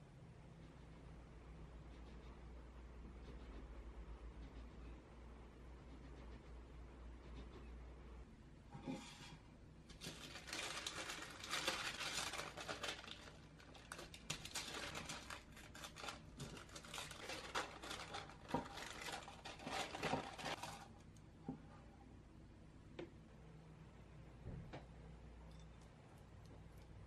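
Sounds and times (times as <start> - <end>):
baking paper rustling and crinkling: 8.9 - 21.0.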